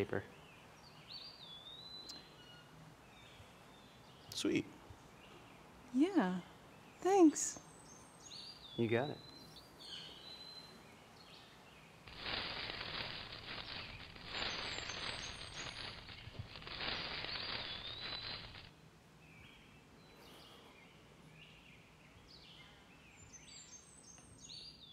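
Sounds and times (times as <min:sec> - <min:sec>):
birds chirping: 0:00.0 - 0:24.9
rustling hiss: 0:11.9 - 0:18.7.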